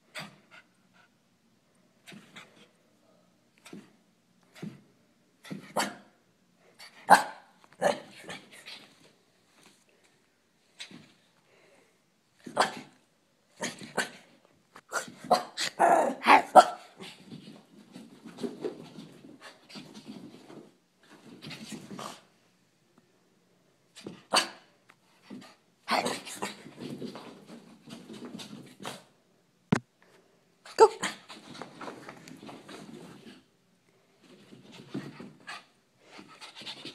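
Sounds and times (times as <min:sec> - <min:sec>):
dog barking and growling: 0:07.0 - 0:08.6, 0:14.9 - 0:17.0.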